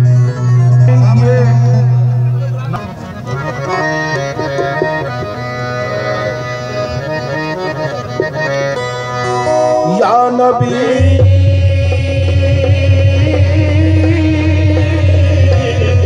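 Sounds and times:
man singing: 0:00.0 - 0:02.6, 0:09.7 - 0:16.0
harmonium melody: 0:00.0 - 0:16.0.

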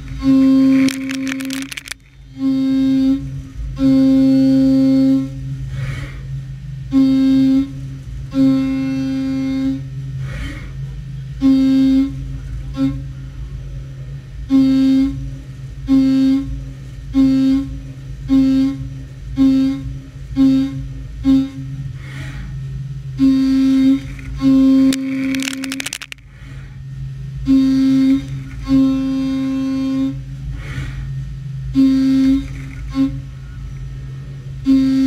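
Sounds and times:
spindle hum: 0:00.0 - 0:35.0.

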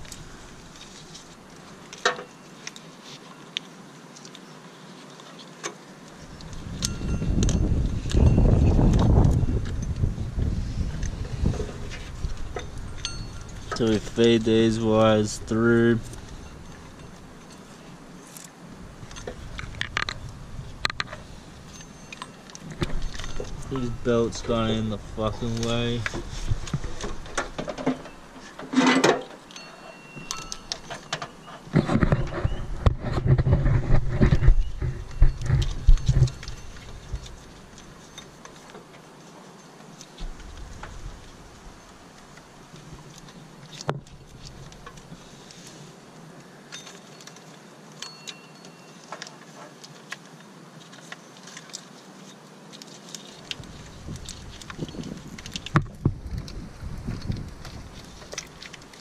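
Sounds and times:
wiring rustling and clicking: 0:00.0 - 0:45.8, 0:46.4 - 0:59.0
rubbing and low rumble: 0:06.3 - 0:18.1, 0:18.7 - 0:21.8, 0:31.6 - 0:37.8, 0:53.6 - 0:59.0.

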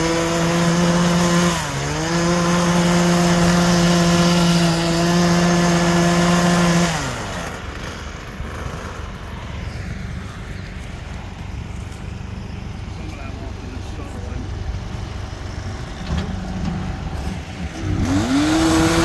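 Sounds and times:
small power tool engine revving: 0:00.0 - 0:09.3, 0:17.7 - 0:19.0.

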